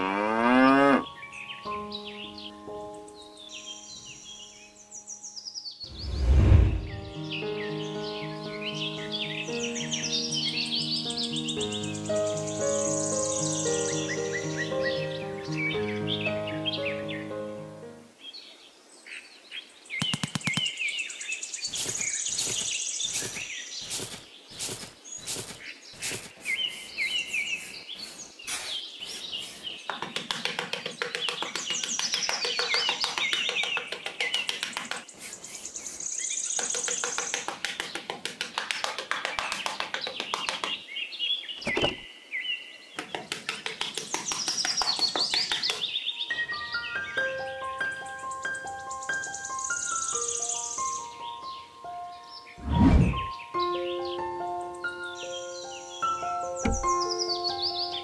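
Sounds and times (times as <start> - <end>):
birds chirping: 0.4 - 17.4, 18.2 - 58.0
trowel scraping damp sand: 21.7 - 38.0.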